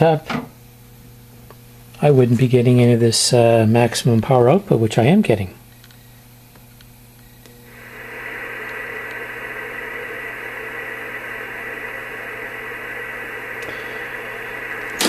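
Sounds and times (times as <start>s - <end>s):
radio static hiss: 7.2s - 15.0s
steady high tone: 7.7s - 15.0s.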